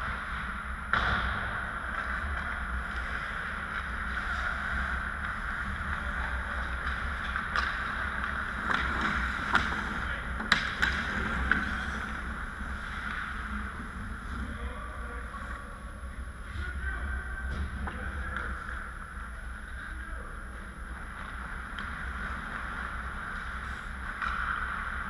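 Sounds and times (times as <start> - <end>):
hockey sticks and puck clacking: 0.0 - 14.5, 17.5 - 19.0, 20.9 - 25.0
steady low hum: 0.0 - 25.0
skate blades scraping ice: 2.0 - 13.7.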